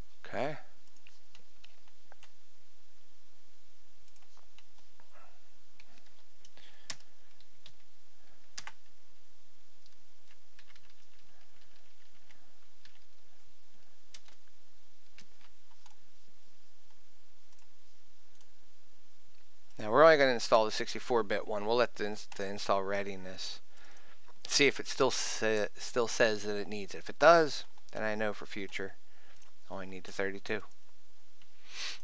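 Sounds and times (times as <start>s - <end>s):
computer mouse and keyboard clicks: 0.8s - 2.4s, 4.0s - 5.1s, 9.8s - 13.2s, 14.1s - 16.0s.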